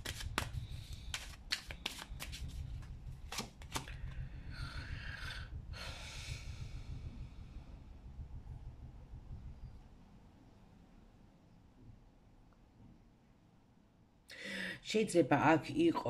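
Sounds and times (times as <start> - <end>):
cards sliding rustle: 0.0 - 2.6, 3.3 - 4.0
cards slapping and flicking: 0.0 - 4.0
steady low hum: 0.0 - 15.5.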